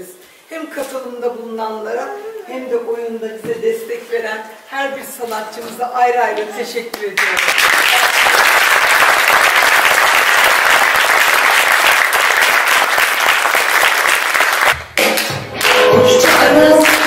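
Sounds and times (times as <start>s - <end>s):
audience applauding: 7.2s - 17.0s
music: 14.8s - 17.0s.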